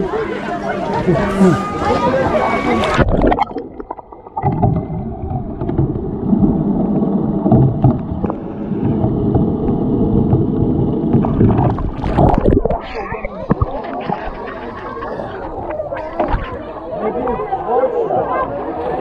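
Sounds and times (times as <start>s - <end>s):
water rush: 0.0s - 17.6s
underwater churning rumble: 0.0s - 19.0s
underwater knocks: 3.0s - 16.6s.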